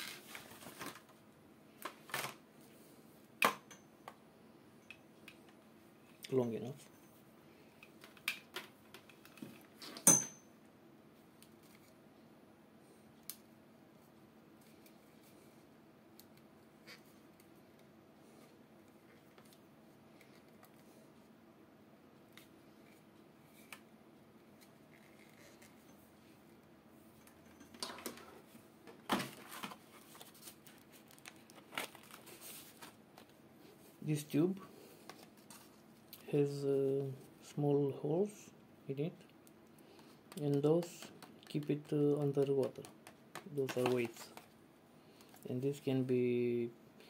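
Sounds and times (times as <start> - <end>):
packaging crinkling: 29.4 - 33.3.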